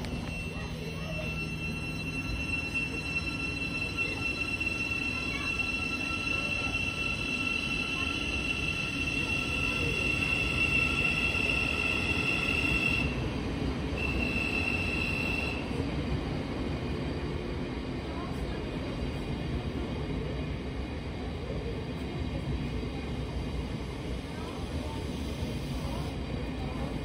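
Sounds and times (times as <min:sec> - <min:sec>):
train wheels squealing: 0:00.0 - 0:13.3, 0:13.9 - 0:15.8
rumble of train carriages: 0:00.0 - 0:27.0.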